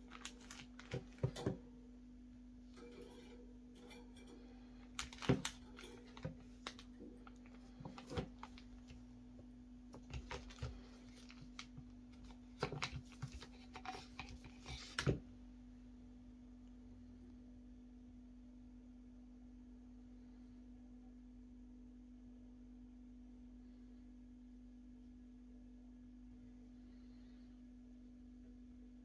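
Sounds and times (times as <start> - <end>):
plastic bag crinkling: 0.0 - 1.6, 4.8 - 9.0, 10.0 - 15.0
faint steady hum: 0.0 - 29.0.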